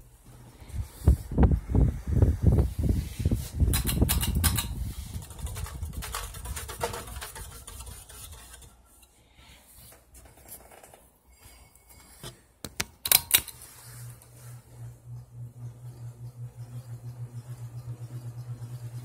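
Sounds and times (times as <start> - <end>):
fan draft buffeting microphone: 0.2 - 8.6.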